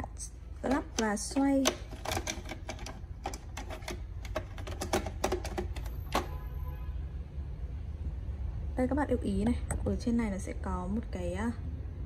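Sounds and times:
plastic juicer parts clicking: 0.6 - 6.4.

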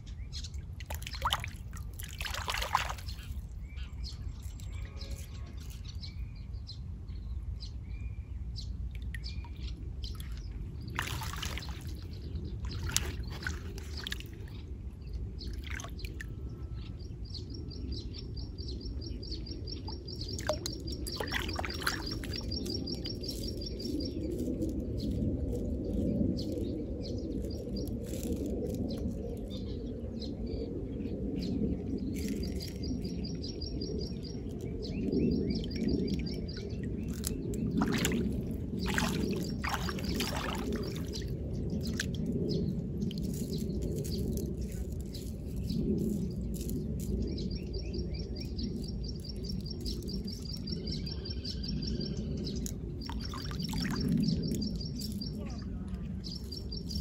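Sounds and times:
water splashing and sloshing: 0.4 - 5.9, 8.8 - 16.6, 19.7 - 26.6, 35.3 - 46.8, 52.6 - 56.6.

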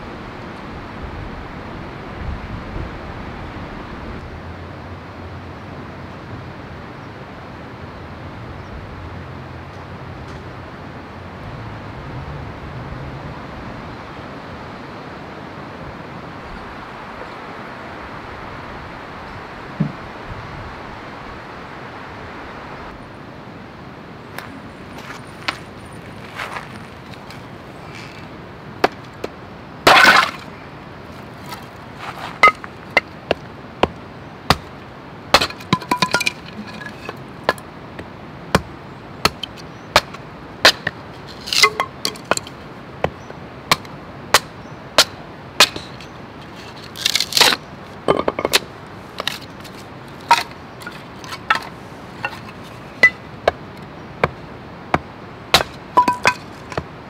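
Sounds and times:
objects clattering: 29.9 - 30.5, 35.4 - 37.6, 41.2 - 42.6, 48.1 - 53.2, 55.6 - 56.8
hard objects knocking and clinking: 35.4 - 37.6, 41.3 - 42.6, 48.1 - 48.6, 50.2 - 53.2, 55.6 - 56.9.

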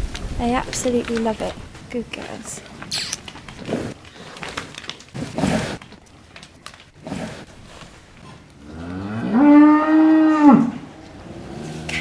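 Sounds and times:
cows snuffling: 2.1 - 9.2
cow breathing noisily: 3.5 - 5.9, 7.0 - 8.4
cow mooing: 8.6 - 12.0.

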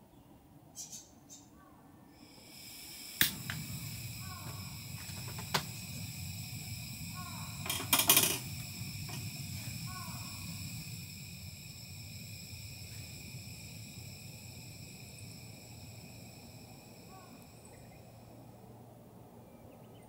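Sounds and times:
steady hiss: 2.1 - 19.5
sharp clicks: 3.2 - 3.7.

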